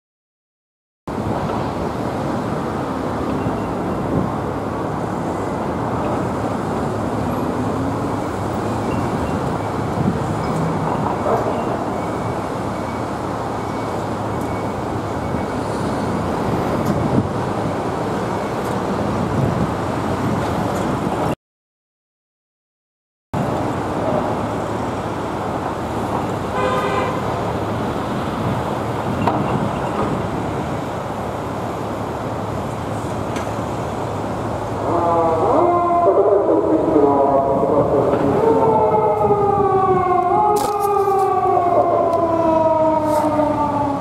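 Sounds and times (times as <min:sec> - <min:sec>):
car and truck engines: 0:01.1 - 0:21.4, 0:23.4 - 0:44.0.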